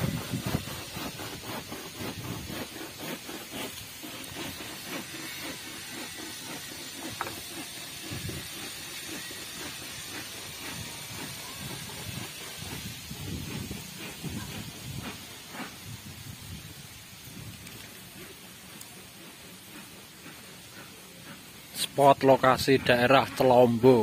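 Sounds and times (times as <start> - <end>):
wind on microphone: 0.0 - 2.8, 8.0 - 8.7, 10.6 - 17.8.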